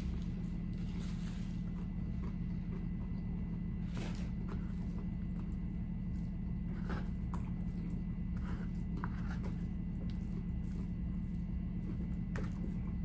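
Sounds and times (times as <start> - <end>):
low hum: 0.0 - 13.0
chewing and mouth smacks: 7.0 - 13.0.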